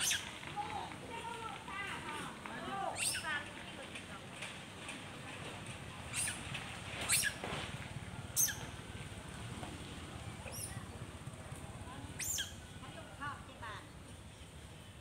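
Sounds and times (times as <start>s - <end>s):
high-pitched animal calls: 0.0s - 0.3s, 2.9s - 3.3s, 12.2s - 12.6s.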